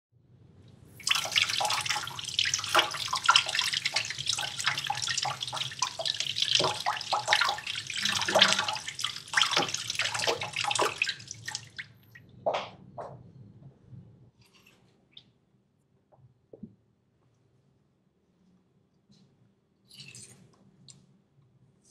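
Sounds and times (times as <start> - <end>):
water splashing: 1.0 - 12.2
water dripping: 1.0 - 12.3.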